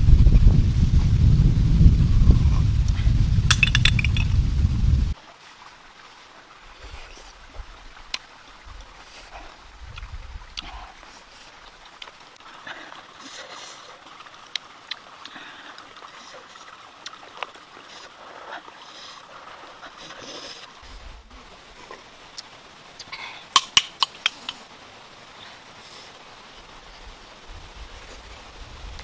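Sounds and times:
faint outdoor hiss: 0.0 - 29.0
snail shells clicking: 23.5 - 24.6.

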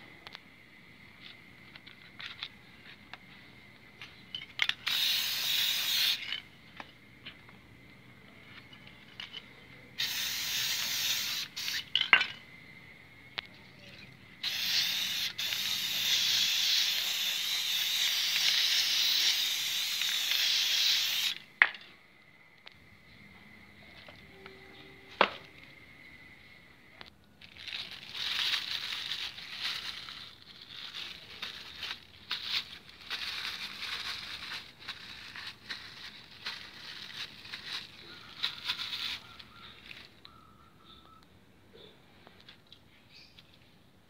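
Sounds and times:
spray paint can hissing: 4.8 - 6.4, 10.0 - 12.0, 14.4 - 21.4.

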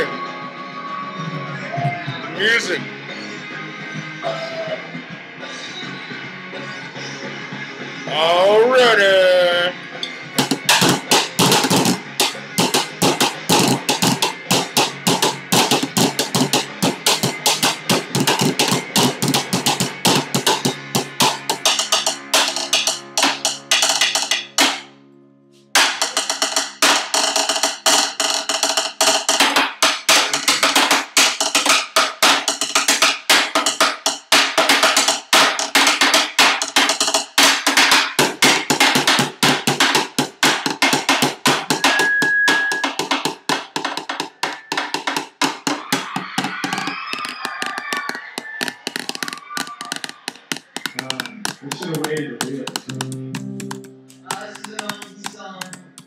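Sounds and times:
drum kit playing fast groove: 10.4 - 24.8, 25.8 - 56.0.

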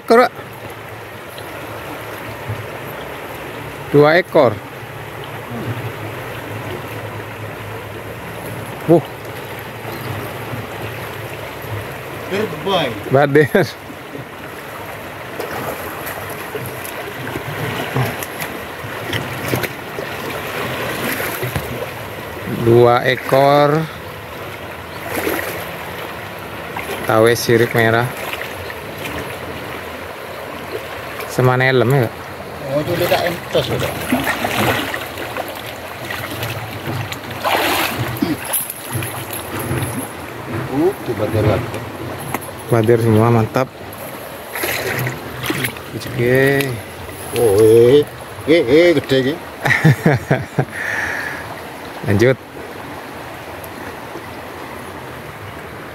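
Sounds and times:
river current rushing: 0.0 - 55.9
water splashing around wading legs: 13.9 - 48.4.

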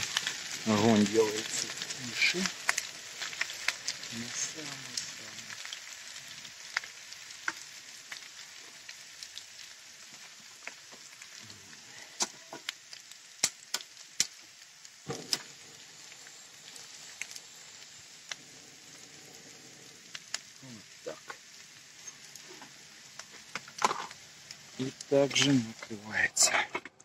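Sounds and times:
potatoes sizzling in oil: 0.0 - 26.5
oil clicks and pops: 6.6 - 9.5, 12.2 - 15.6, 20.1 - 25.9.

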